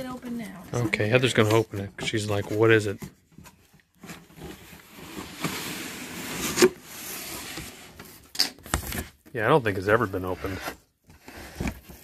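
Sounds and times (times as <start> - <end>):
cardboard box being opened: 10.4 - 12.0.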